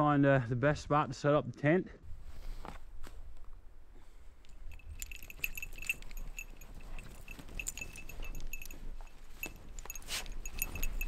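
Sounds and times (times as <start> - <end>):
dog tags jingling: 4.4 - 11.0.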